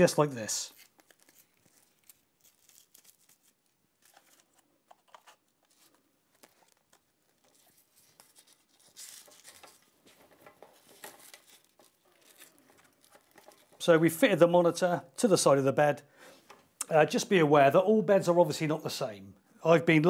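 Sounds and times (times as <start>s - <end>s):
velcro tearing rasp: 0.7s - 4.4s, 10.9s - 13.7s
velcro strap rustling and clicking: 0.7s - 13.8s.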